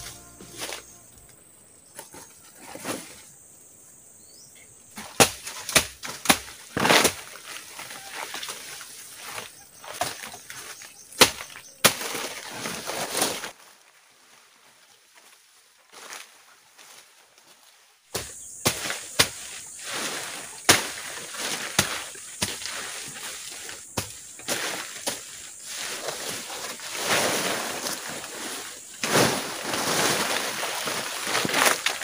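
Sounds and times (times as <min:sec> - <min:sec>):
leaves rustling: 0:00.0 - 0:03.3, 0:05.0 - 0:32.0
branches snapping: 0:29.0 - 0:32.0.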